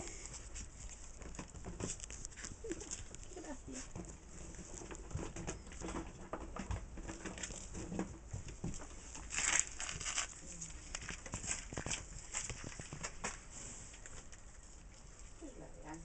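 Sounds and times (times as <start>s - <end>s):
puppies scuffling on concrete: 0.0s - 16.0s
rustle: 0.0s - 16.0s.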